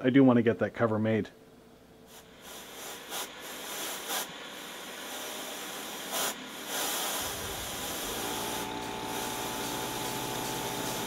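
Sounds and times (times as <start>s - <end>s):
mill cutting metal: 7.2s - 11.0s.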